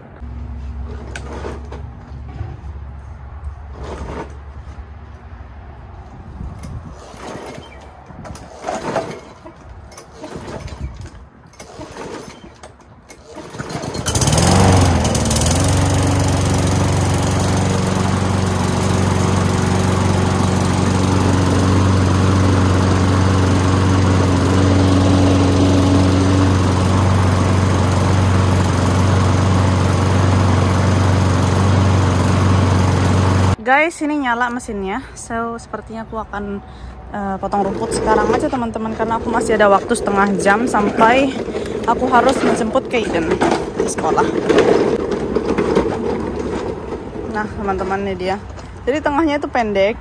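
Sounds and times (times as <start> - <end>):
lawn mower engine starting: 3.7 - 4.7, 6.6 - 33.6, 37.4 - 48.9.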